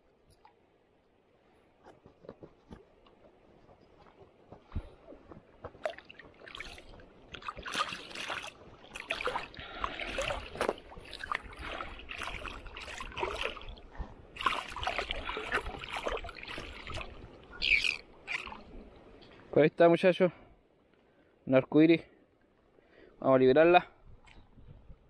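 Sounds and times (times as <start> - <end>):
water splashing and sloshing: 0.0 - 19.6.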